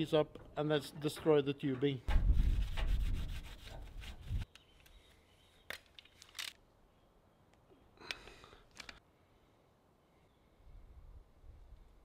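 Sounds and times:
cloth rubbing on steel door: 2.2s - 4.4s.

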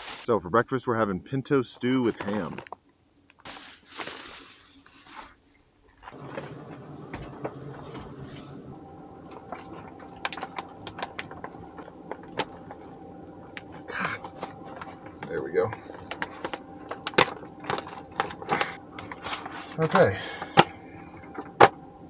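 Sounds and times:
faint steady hum: 0.0s - 22.0s
plastic bag crinkling: 9.3s - 19.9s.

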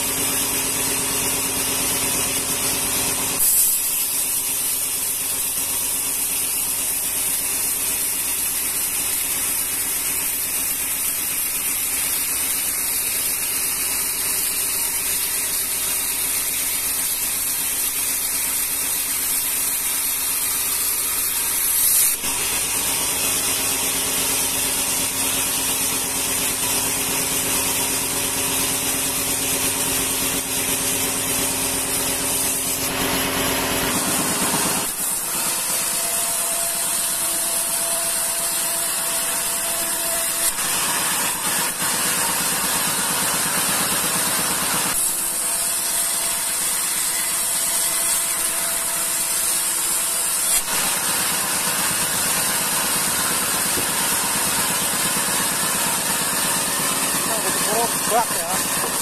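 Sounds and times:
band saw blade hissing through wood: 0.0s - 59.0s
machine motor humming: 50.3s - 59.0s.

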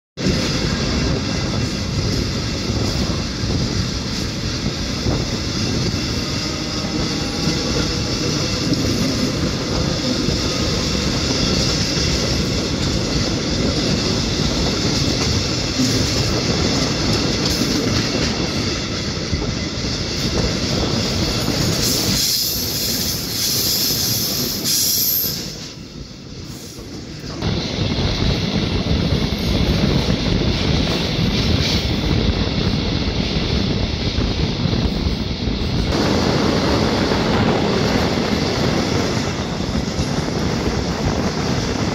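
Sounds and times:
train wheels on rails: 0.2s - 41.9s
high wheel squeal: 4.8s - 12.5s, 19.4s - 25.8s.

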